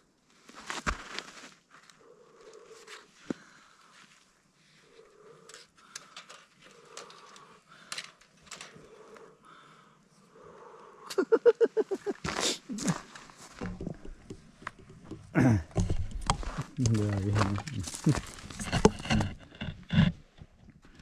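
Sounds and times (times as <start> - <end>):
person breathing heavily: 5.2 - 11.2.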